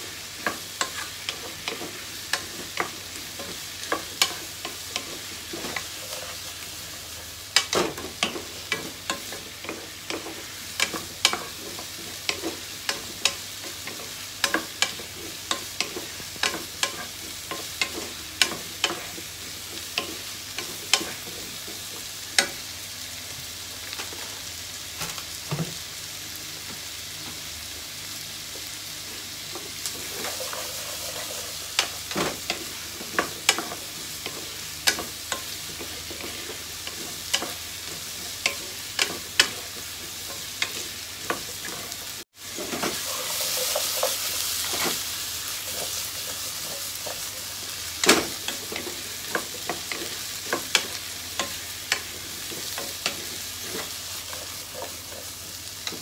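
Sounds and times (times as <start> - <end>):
vegetables sizzling in a frying pan: 0.0 - 56.0
wooden spatula scraping a pan: 0.4 - 6.6, 29.6 - 34.5, 41.3 - 47.6.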